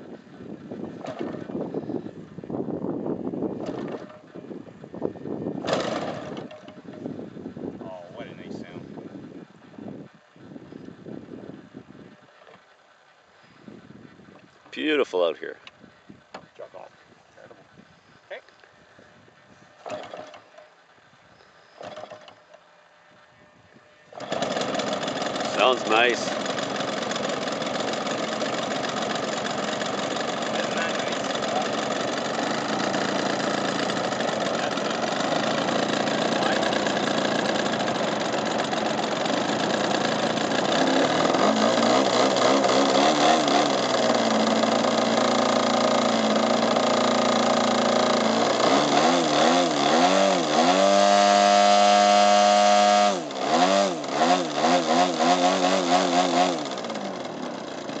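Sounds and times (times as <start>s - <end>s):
model plane engine revving: 5.1s - 6.9s, 19.8s - 20.8s, 21.4s - 58.0s.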